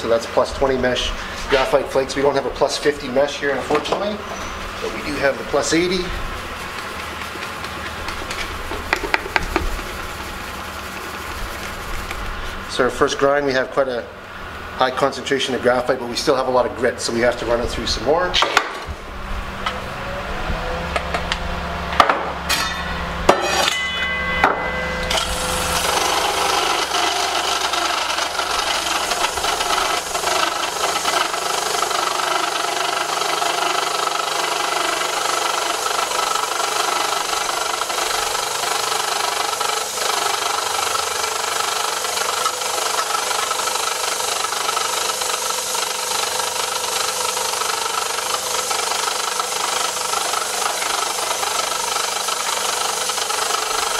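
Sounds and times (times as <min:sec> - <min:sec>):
grinding mill motor hum: 0:00.0 - 0:53.9
loud grinding of ore: 0:00.6 - 0:12.9, 0:24.9 - 0:53.9
knocks and clinks: 0:22.5 - 0:25.2.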